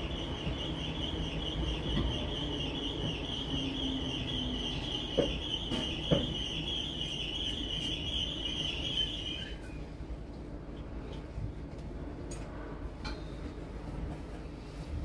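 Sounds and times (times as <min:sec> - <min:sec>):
high-pitched brake squeal: 0:00.0 - 0:09.9
electric train rumble: 0:00.0 - 0:15.0.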